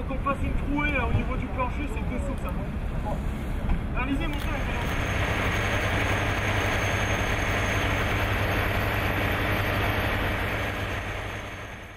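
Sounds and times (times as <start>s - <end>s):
engine low hum: 4.6s - 11.9s.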